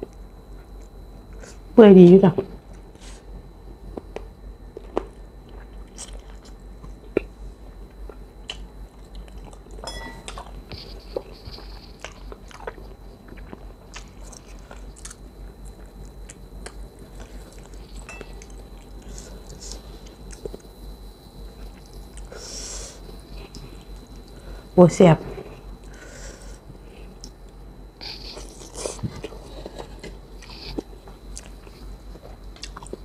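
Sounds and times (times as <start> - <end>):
person chewing with mouth smacks: 3.9 - 20.7, 23.3 - 24.4, 28.0 - 33.0.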